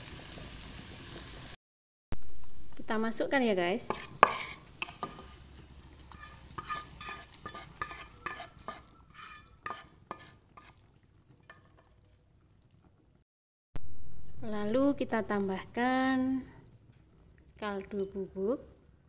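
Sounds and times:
spatula scraping a pan: 3.7 - 12.0.

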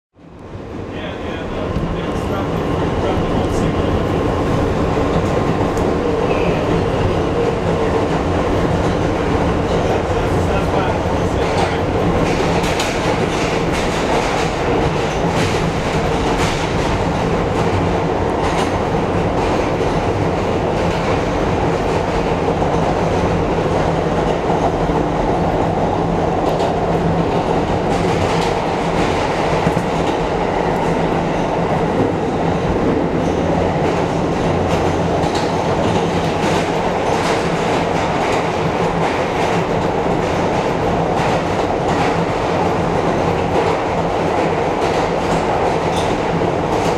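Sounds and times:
subway train rumbling in tunnel: 0.2 - 46.9.

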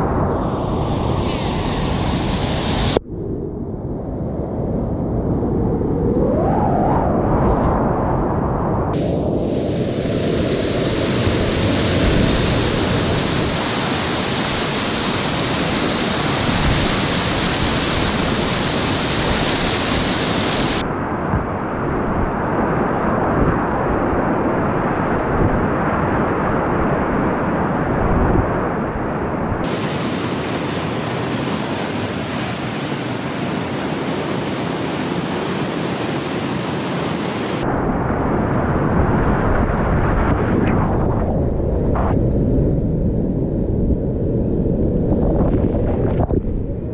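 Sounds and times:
faint high whine: 0.0 - 25.5.

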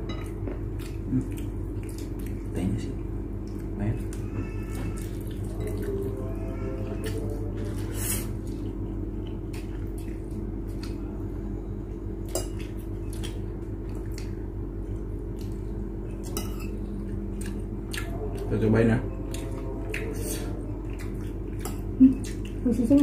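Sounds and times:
low hum: 0.0 - 23.0.

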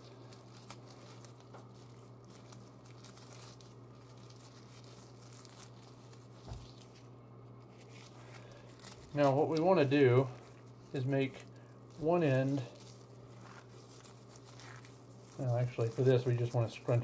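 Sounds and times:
scouring pad crinkling: 0.0 - 17.0.

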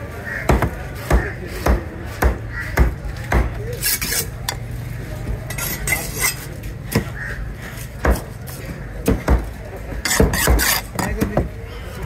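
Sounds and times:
blade scraping and clinking: 3.7 - 4.7, 5.5 - 6.6, 10.0 - 11.2
knife chopping fish: 10.1 - 11.4.

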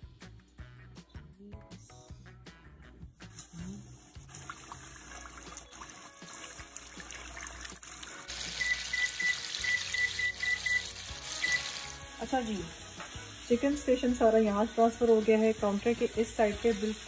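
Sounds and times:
chicken frying in oil: 3.2 - 17.0
short high beeps: 8.5 - 11.8.

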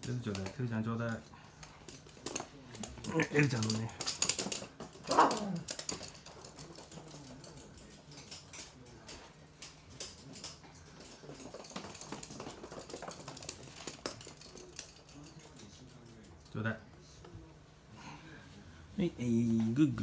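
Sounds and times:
dog claws clicking on hard floor: 0.0 - 16.6.

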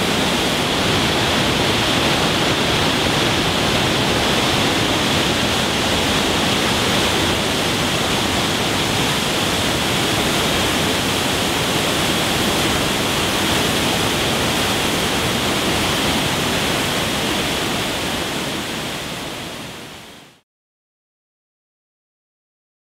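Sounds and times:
waterfall rushing: 0.0 - 20.4.

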